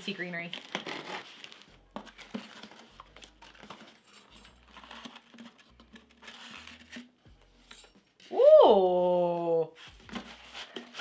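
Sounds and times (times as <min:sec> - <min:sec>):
packing material rustling: 0:00.4 - 0:07.0.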